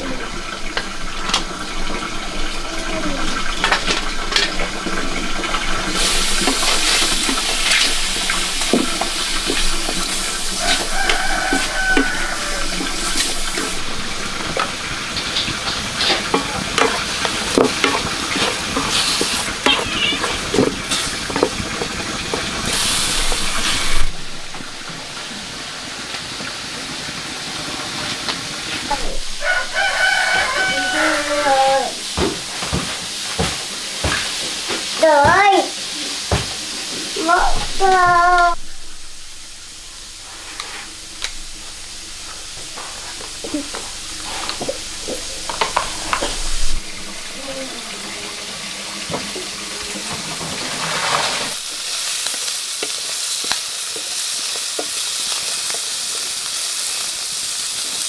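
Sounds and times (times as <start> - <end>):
water pouring and splashing: 0.0 - 58.0
chickens clucking: 2.7 - 24.9.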